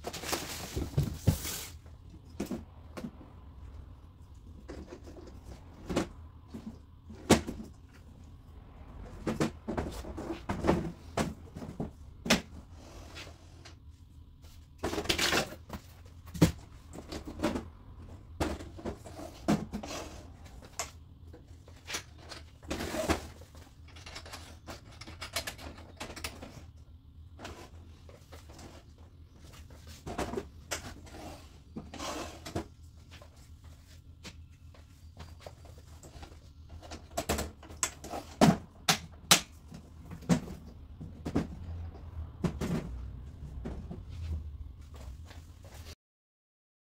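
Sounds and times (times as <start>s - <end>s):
clicks and knocks of handling: 23.5s - 26.7s.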